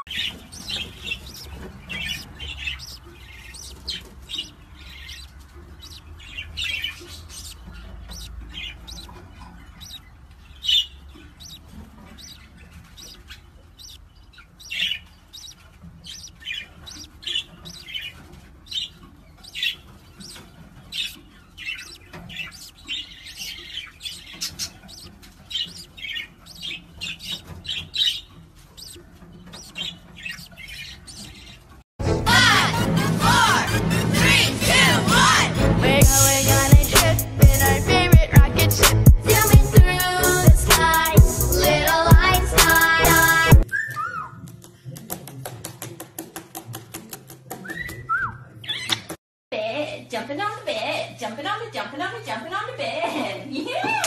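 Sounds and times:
budgerigars chirping: 0.0s - 31.8s, 36.0s - 44.2s.

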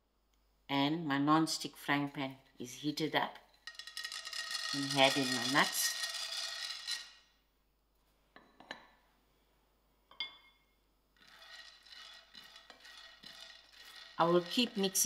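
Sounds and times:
nuts stirred in a pan: 3.6s - 7.2s, 11.2s - 15.0s
peanuts rattling into frying pan: 3.6s - 7.2s, 11.2s - 15.0s.

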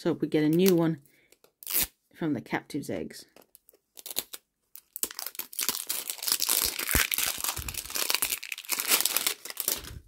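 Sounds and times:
wrapper crinkling and tearing: 3.9s - 10.0s.

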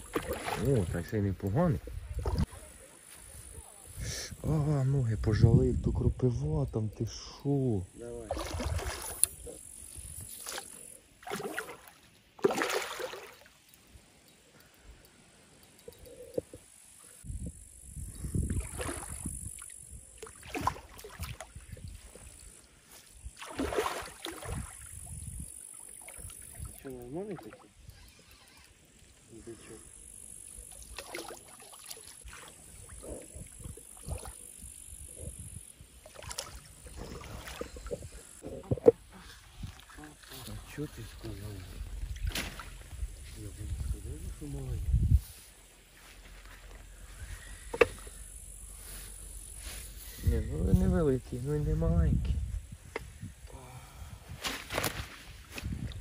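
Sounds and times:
fish thrashing and splashing: 0.0s - 0.9s, 10.4s - 13.5s, 23.4s - 24.8s
water splashing and sloshing: 0.0s - 3.2s, 8.2s - 14.0s, 18.4s - 27.8s, 30.7s - 34.7s, 35.8s - 43.8s
landing net swept through water: 10.4s - 13.5s, 23.4s - 24.9s, 42.1s - 42.9s.

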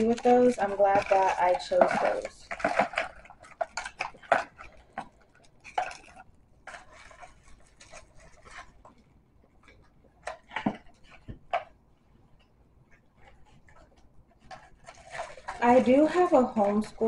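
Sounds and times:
paper packaging rustling: 0.0s - 2.6s
boxes clicking and tapping: 0.0s - 3.0s.

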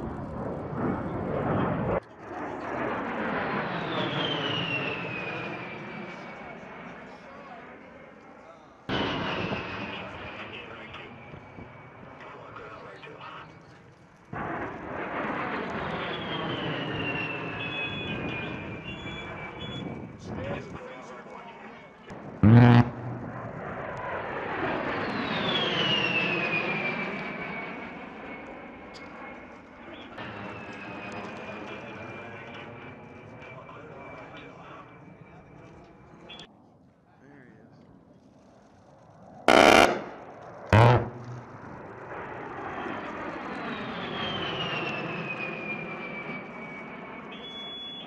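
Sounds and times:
jet passing overhead: 0.0s - 8.1s, 8.9s - 13.0s, 14.3s - 20.2s, 22.1s - 33.3s, 39.2s - 47.3s
high jet engine whine: 0.0s - 36.7s, 38.0s - 48.0s
high whine falling in pitch: 22.4s - 23.7s, 39.5s - 41.8s
jet flying past rushing: 39.5s - 42.1s.

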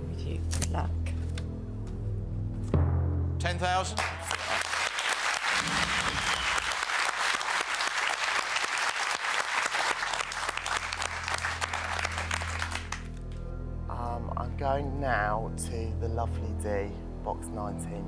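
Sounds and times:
studio audience applauding: 3.8s - 13.2s.

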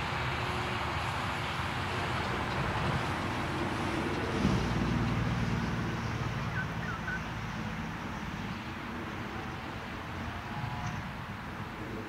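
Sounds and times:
train wheels rumbling on rail: 0.0s - 12.0s
bird chirps: 6.5s - 7.3s.

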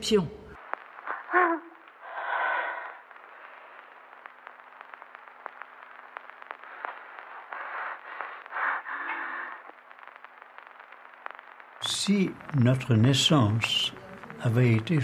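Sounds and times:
film soundtrack hiss: 0.0s - 15.0s
small crackling clicks: 0.6s - 15.0s.

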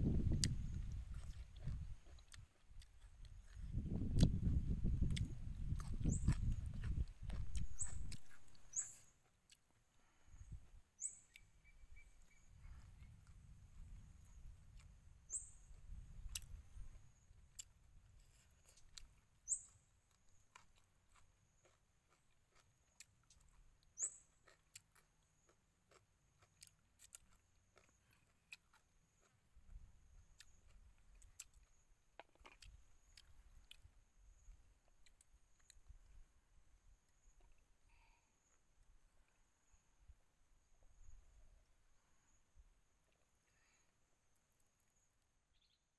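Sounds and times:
chewing: 0.3s - 9.8s, 14.6s - 15.0s, 15.7s - 33.9s, 34.8s - 35.9s.

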